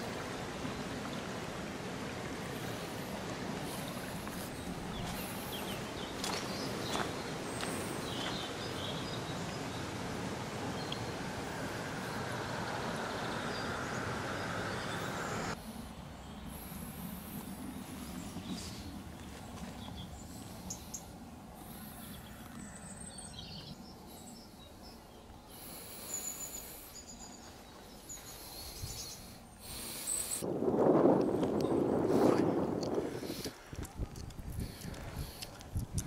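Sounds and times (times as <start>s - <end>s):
stream water rushing: 0.0s - 15.6s.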